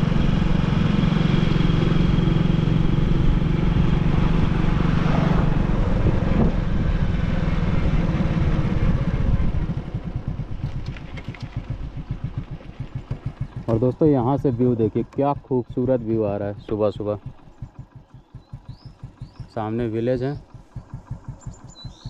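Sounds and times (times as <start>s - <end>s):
vehicle engine running: 0.0s - 22.0s.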